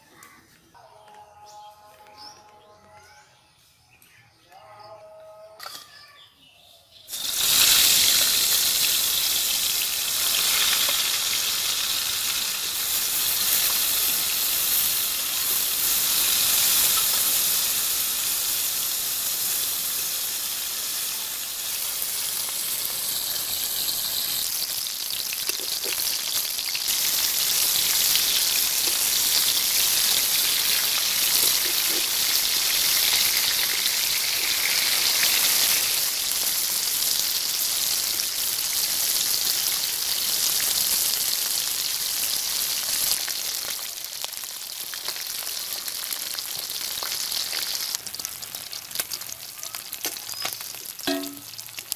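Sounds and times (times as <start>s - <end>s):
fish sizzling in hot oil: 6.9s - 51.9s.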